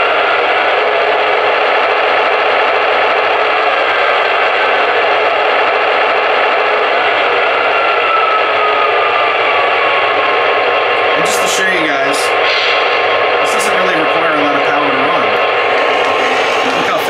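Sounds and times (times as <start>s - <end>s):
diesel engine sound from speaker: 11.0s - 12.6s, 13.4s - 17.0s.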